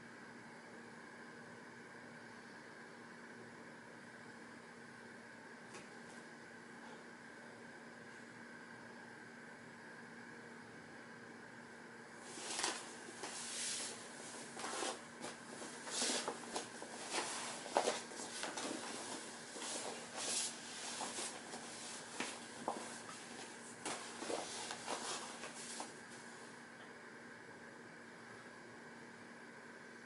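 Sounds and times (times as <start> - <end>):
faint steady hiss and hum: 0.0 - 30.0
body scuffing on exercise mat: 12.3 - 26.0.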